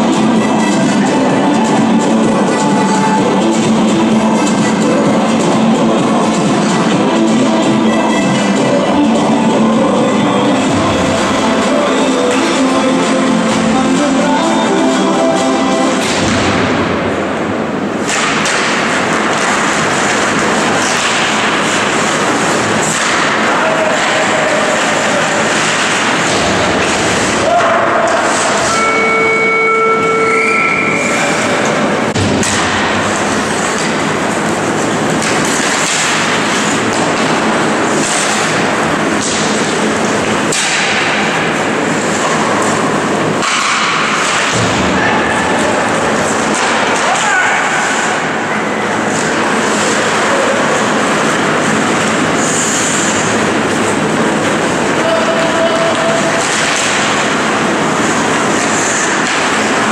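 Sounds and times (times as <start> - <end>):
hockey sticks and puck clacking: 0.0 - 9.1, 10.5 - 16.8, 17.8 - 59.9
music: 0.0 - 17.2
skates scraping on ice: 18.0 - 28.9, 32.4 - 59.9.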